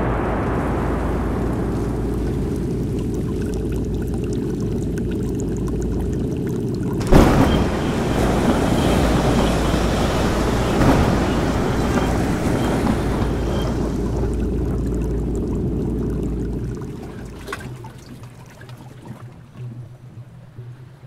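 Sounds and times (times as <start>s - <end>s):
loud crash: 0.0s - 3.5s, 7.0s - 14.8s
heavy waves: 0.0s - 18.5s
rain: 0.0s - 18.7s
wind: 0.0s - 21.0s.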